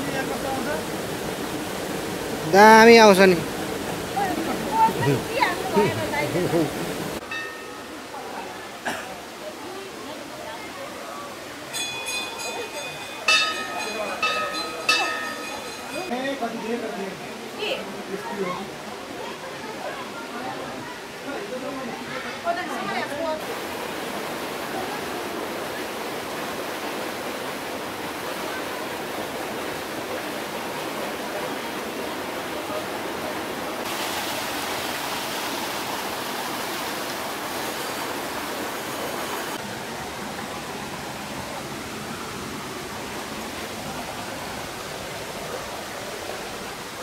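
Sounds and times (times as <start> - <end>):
stream and waterfall rushing: 0.0 - 47.0.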